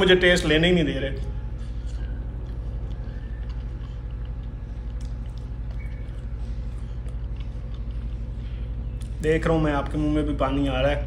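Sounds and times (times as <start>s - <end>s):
steady low hum: 0.0s - 11.0s
person chewing: 1.2s - 9.2s.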